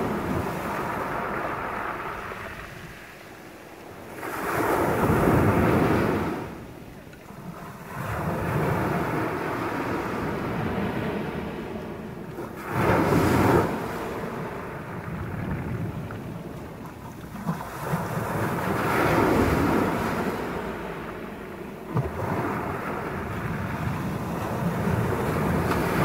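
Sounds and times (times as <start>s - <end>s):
waves breaking on pebble beach: 0.0s - 6.6s, 12.4s - 16.5s.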